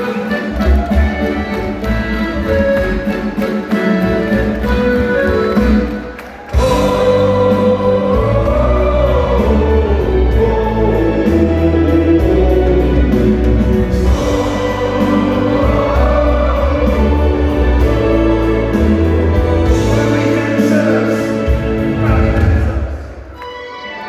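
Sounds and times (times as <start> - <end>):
folk-rock band playing: 0.0 - 24.0
drum beat: 3.8 - 9.8
heavy bass line: 6.6 - 20.6
person singing: 6.6 - 24.0.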